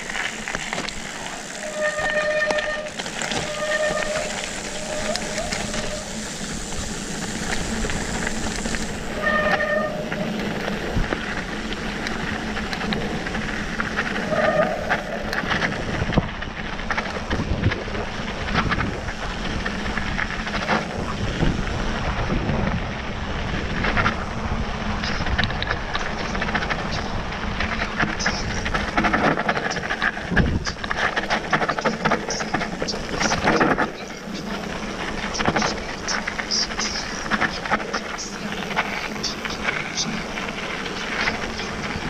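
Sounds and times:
bike rattling over stones: 0.0 - 42.0
bike tyres crunching on gravel: 0.0 - 42.0
short squeals: 1.5 - 6.3, 9.1 - 10.3.

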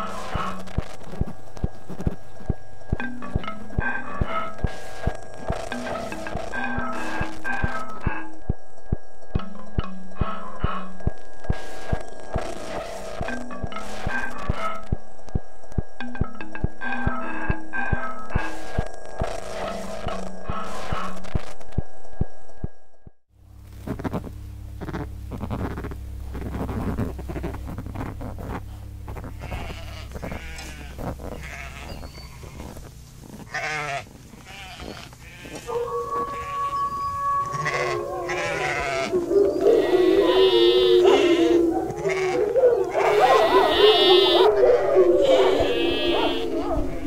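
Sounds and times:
low hum: 0.0 - 47.0
sheep bleating: 29.1 - 32.8, 33.4 - 44.6, 45.2 - 47.0.

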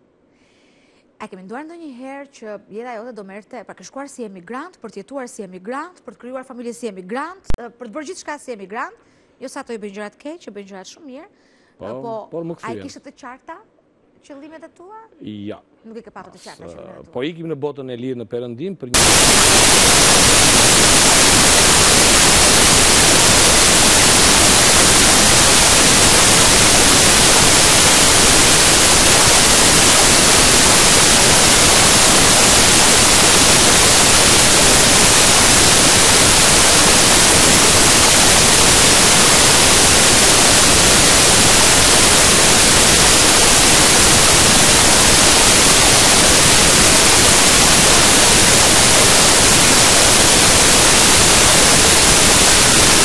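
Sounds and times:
static hiss: 18.9 - 53.0.

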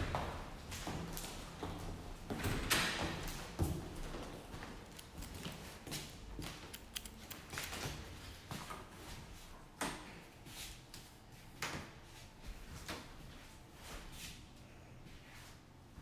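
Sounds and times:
footsteps on tile floor: 0.0 - 9.5.

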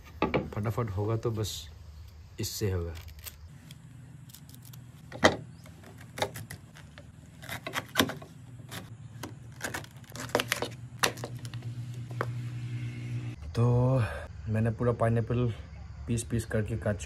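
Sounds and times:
knife cutting pineapple: 5.8 - 11.6.

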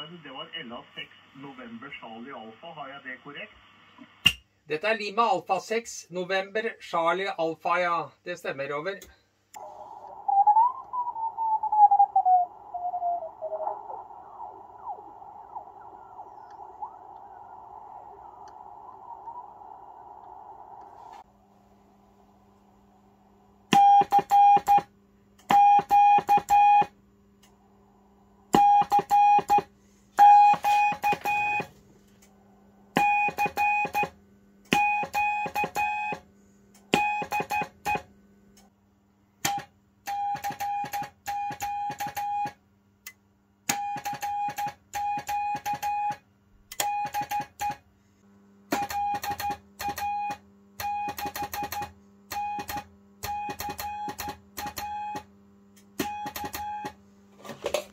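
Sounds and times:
faint low hum: 0.0 - 23.7
morse code tone: 28.6 - 31.7, 33.0 - 34.1.

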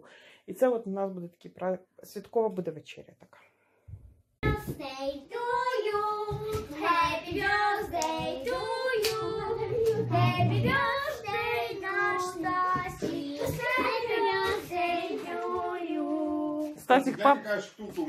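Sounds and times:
child singing: 4.4 - 16.8.

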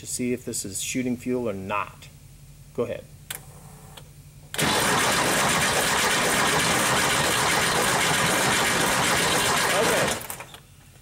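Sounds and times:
car engine cranking on starter: 4.6 - 10.5.

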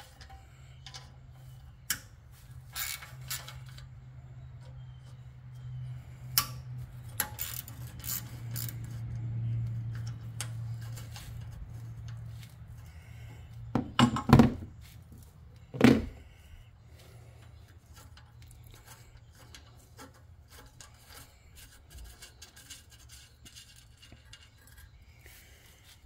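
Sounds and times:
wrench clicking on bolts: 6.4 - 12.2
metal knocks: 13.7 - 14.7.

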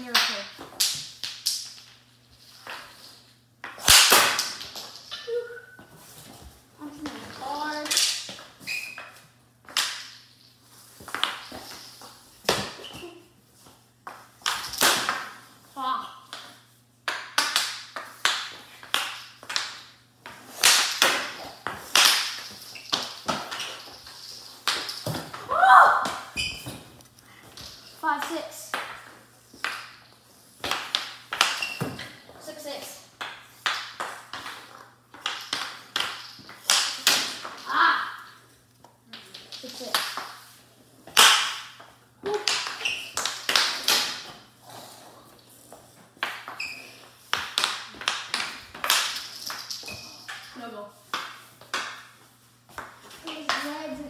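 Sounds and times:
hockey stick knocking ball on floor: 11.0 - 13.1, 16.3 - 32.3, 33.2 - 37.8, 39.1 - 44.4, 45.7 - 54.0.

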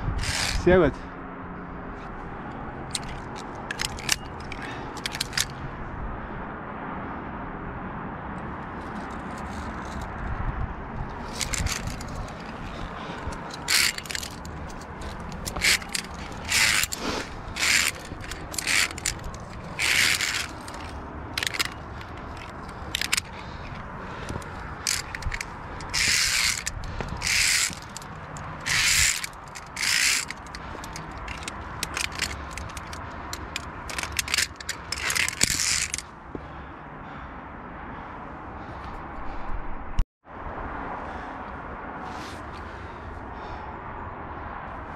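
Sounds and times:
carabiners scraping on steel cable: 0.0 - 0.9, 2.9 - 5.6, 8.8 - 10.2, 11.1 - 36.1
steady low rumble: 8.4 - 36.1, 38.4 - 40.6.

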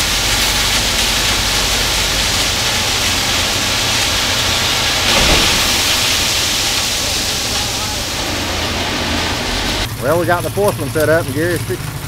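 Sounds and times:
gravel pouring from truck bed: 1.6 - 9.9.

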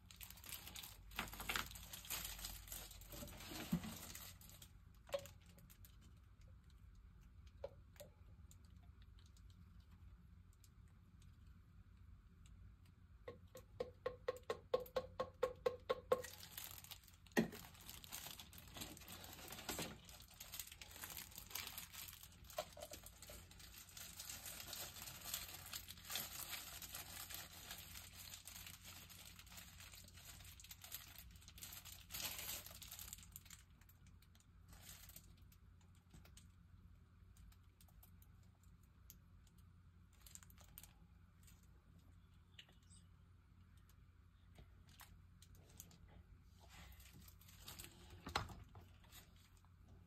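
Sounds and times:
packaging crinkling: 0.0 - 7.3, 15.9 - 36.5, 39.5 - 41.7, 46.8 - 49.7.

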